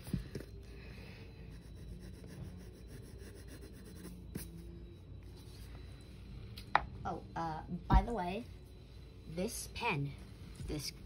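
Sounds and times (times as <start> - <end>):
low room hum: 0.0 - 11.0
pencil scratching on paper: 1.5 - 4.6.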